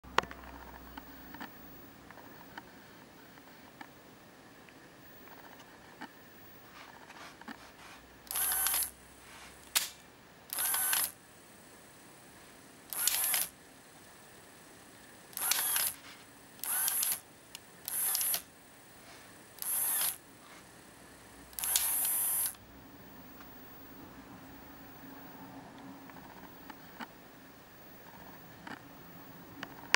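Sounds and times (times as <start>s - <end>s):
small mechanism clicks: 8.3s - 8.9s, 9.7s - 11.2s, 12.9s - 13.5s, 15.4s - 16.0s, 16.6s - 18.5s, 19.6s - 20.2s, 21.6s - 22.6s.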